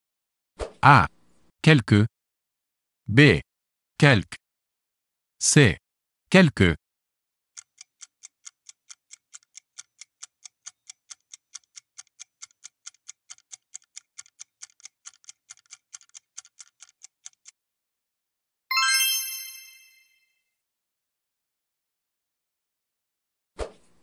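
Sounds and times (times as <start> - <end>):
fast clock ticking: 7.6 - 17.5.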